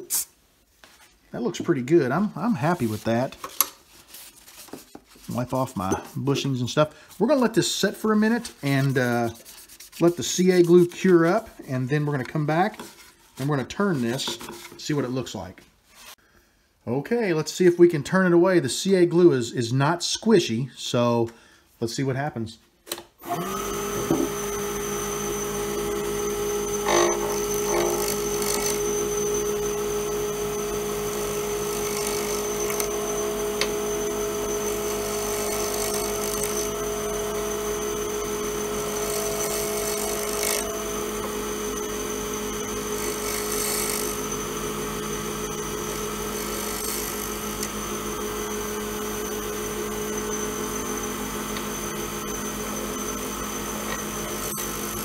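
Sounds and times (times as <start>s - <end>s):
turning tool scraping resin: 2.4s - 15.0s, 26.7s - 50.5s
lathe humming: 23.3s - 55.0s.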